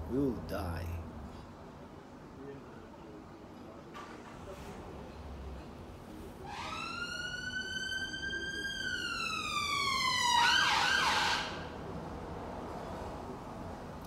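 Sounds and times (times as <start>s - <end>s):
emergency vehicle siren: 6.4s - 11.8s.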